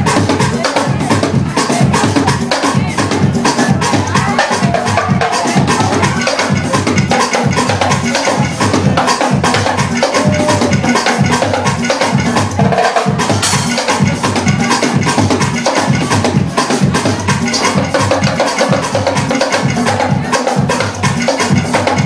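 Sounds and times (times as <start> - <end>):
congas played by hand: 0.0 - 22.0
club dance track: 13.3 - 14.2.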